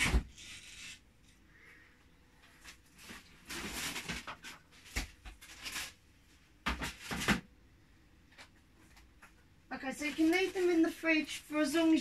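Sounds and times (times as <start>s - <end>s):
rustling of things handled: 2.4s - 7.5s, 8.2s - 12.0s.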